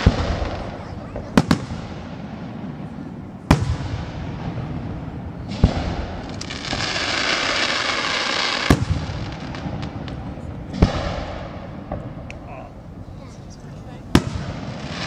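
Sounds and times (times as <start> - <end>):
firework hissing: 5.4 - 11.6, 12.8 - 15.0.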